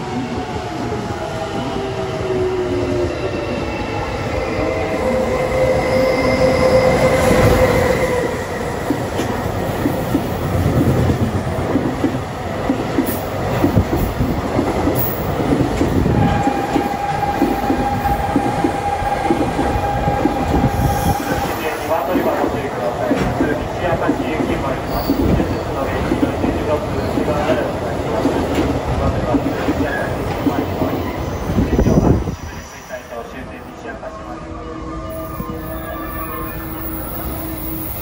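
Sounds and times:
train wheels rumbling over joints: 7.2s - 32.6s.

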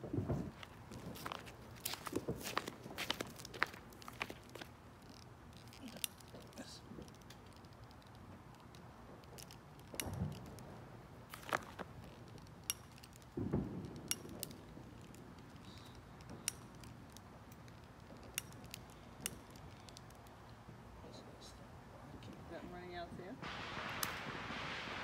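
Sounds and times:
lighter igniter clicking: 23.9s - 24.3s.

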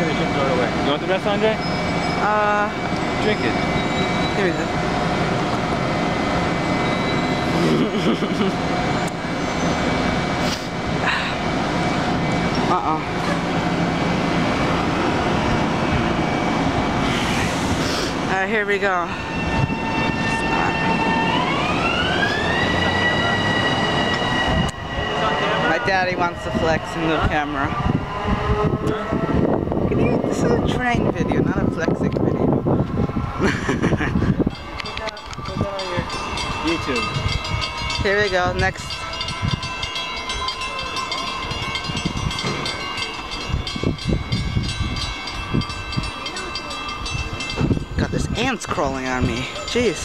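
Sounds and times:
crossing warning bell ringing: 0.0s - 10.4s, 18.3s - 32.6s, 34.2s - 50.0s
wheels rumbling on rails: 0.0s - 50.0s.

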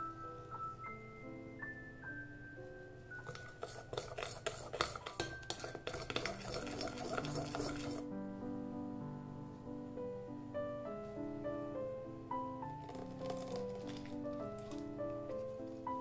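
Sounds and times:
soft piano music: 0.0s - 16.0s
metal utensil clinking in bowl: 3.2s - 8.0s, 12.9s - 14.9s.

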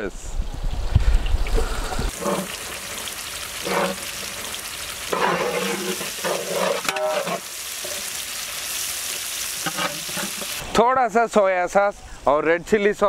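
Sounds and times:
metal ladle scraping pot: 2.1s - 8.1s, 9.6s - 10.6s
vegetables sizzling in hot oil: 2.1s - 10.6s.

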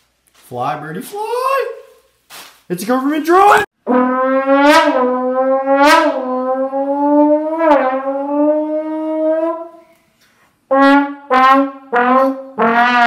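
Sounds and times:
trombone long note: 3.8s - 9.7s, 10.7s - 13.0s.

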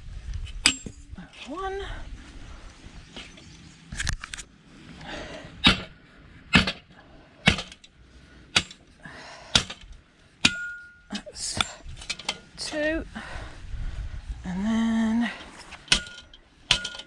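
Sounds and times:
metallic ringing tone: 10.4s - 11.2s
metal scrap being struck: 10.4s - 12.6s.

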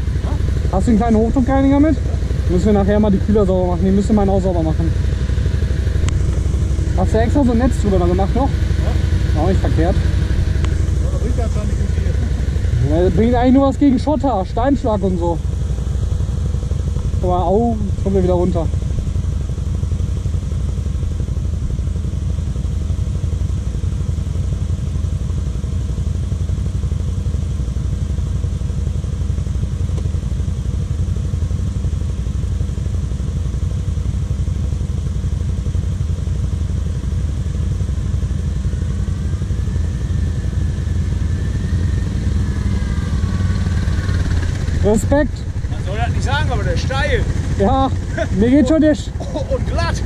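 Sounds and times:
atv engine idling: 0.0s - 50.0s
faint wavering engine whine: 0.0s - 50.0s.

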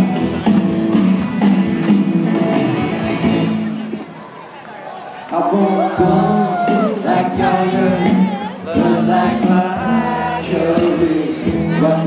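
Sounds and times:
live band music with singing: 0.0s - 4.1s, 5.2s - 12.0s.

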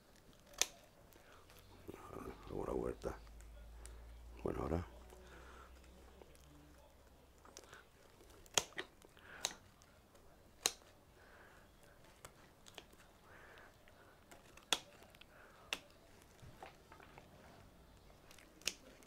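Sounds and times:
faint rustling of roots: 0.0s - 19.0s
pruning shears snipping roots: 8.4s - 9.6s, 18.6s - 19.0s.

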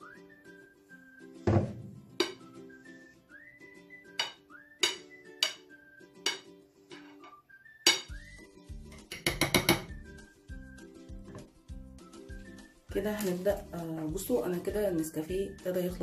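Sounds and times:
music with whistled melody: 0.0s - 16.0s
spoon clinking on glass dish: 4.2s - 5.6s, 6.2s - 7.2s, 7.9s - 8.2s.

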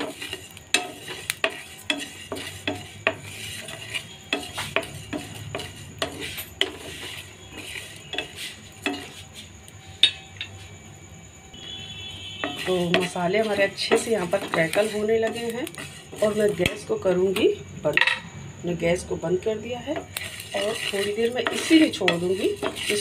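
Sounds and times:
spatula scraping a pan: 0.0s - 10.7s, 11.6s - 18.2s, 19.4s - 23.0s
seeds crackling: 20.0s - 23.0s.

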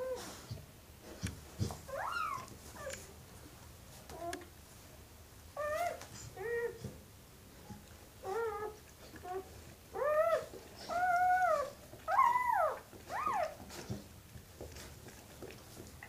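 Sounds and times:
dog whimpering cries: 1.9s - 2.9s, 5.6s - 6.8s, 8.2s - 13.6s.

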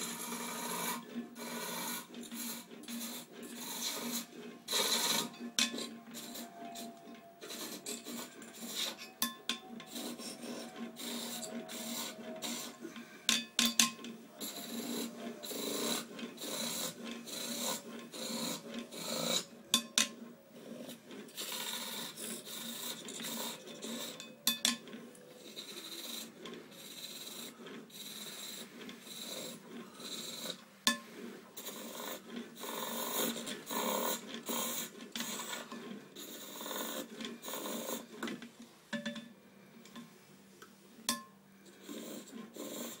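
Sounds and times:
chisel rasping on wood: 0.0s - 24.4s, 25.4s - 38.4s.

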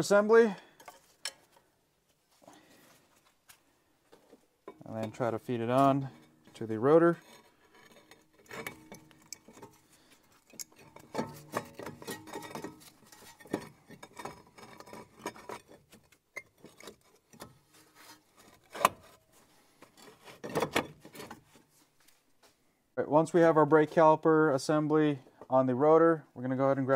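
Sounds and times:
metallic clicks and scraping: 4.2s - 21.7s.

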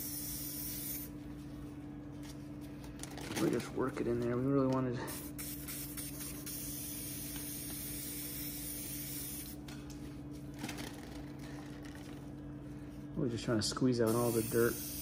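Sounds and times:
aerosol can spraying: 0.0s - 1.1s, 5.1s - 9.6s, 14.1s - 15.0s.

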